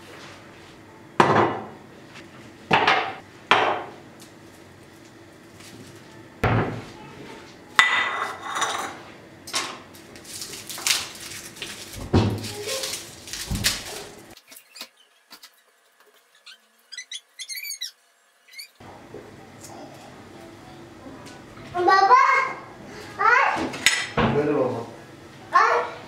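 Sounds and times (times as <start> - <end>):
garlic skins crackling: 9.9 - 17.0.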